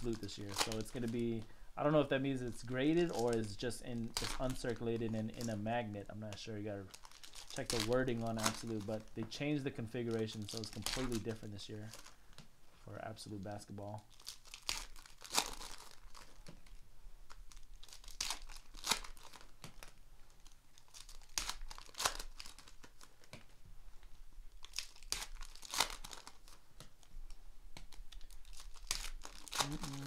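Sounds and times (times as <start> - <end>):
foil wrappers tearing and crinkling: 0.0 - 1.4, 2.2 - 5.7, 6.9 - 12.2, 14.1 - 23.4, 24.5 - 26.6, 27.9 - 30.0.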